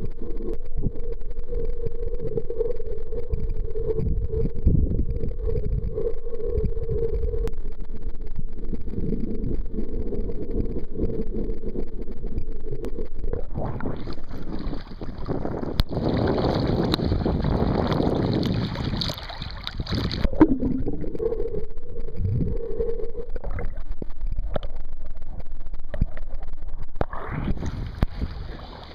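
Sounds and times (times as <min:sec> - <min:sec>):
faint steady hum: 0:00.0 - 0:28.9
muffled underwater water noise: 0:00.0 - 0:28.9
wind: 0:12.9 - 0:28.9
choppy splashing waves: 0:13.6 - 0:20.8, 0:27.1 - 0:28.9.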